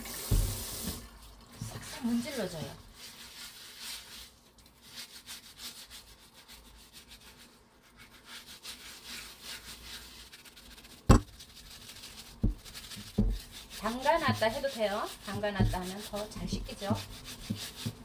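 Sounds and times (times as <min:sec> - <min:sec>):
scrubber rubbing squash rind: 0:01.7 - 0:18.0
sharp knocks: 0:11.1 - 0:11.3.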